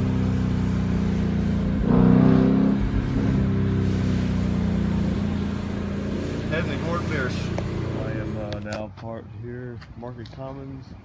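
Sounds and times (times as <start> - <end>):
car engine drone inside cabin: 0.0 - 8.5.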